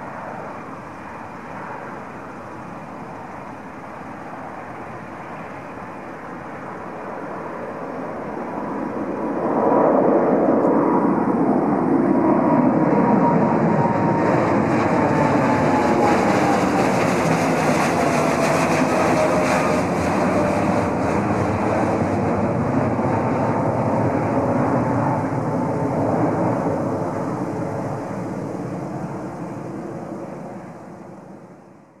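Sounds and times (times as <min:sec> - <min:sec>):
faint jet whine: 0:00.0 - 0:32.0
jet engine roar: 0:00.0 - 0:32.0.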